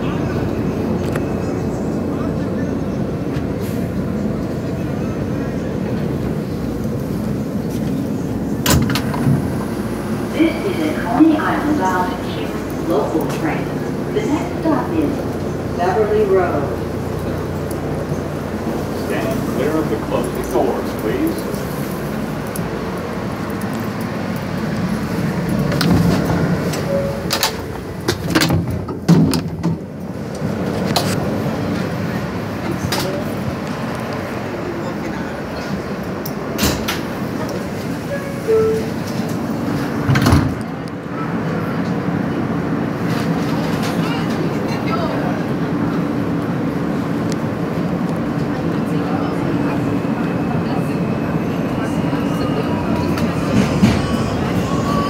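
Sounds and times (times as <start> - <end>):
subway car wheels rumbling: 0.0 - 55.0.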